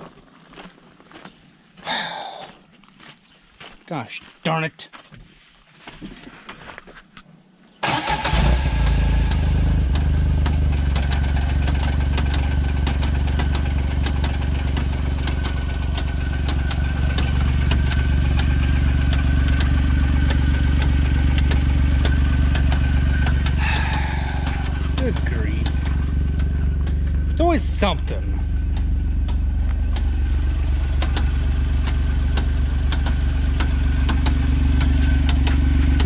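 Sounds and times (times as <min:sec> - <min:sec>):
irregular sharp engine ticking: 0:07.8 - 0:36.0
utility vehicle engine starting and idling: 0:07.8 - 0:36.0.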